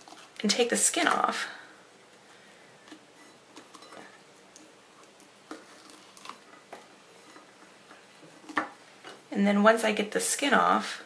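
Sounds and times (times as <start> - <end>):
avocado skin peeling: 0.0 - 0.5, 2.1 - 9.3.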